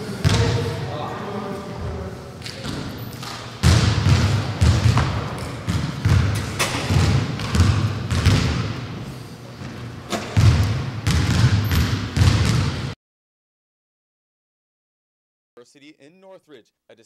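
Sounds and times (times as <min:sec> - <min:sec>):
basketballs bouncing on gym floor: 0:00.2 - 0:00.7, 0:02.4 - 0:09.0, 0:10.2 - 0:13.0.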